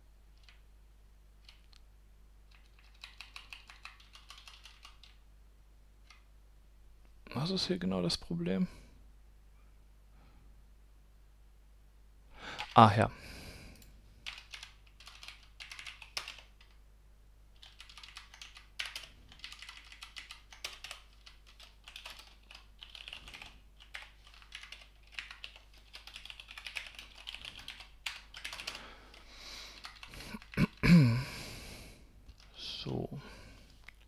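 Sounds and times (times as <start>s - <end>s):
computer keyboard typing: 0.4s - 0.6s, 1.4s - 1.8s, 2.5s - 5.2s, 12.6s - 12.9s, 14.2s - 16.8s, 17.6s - 30.8s.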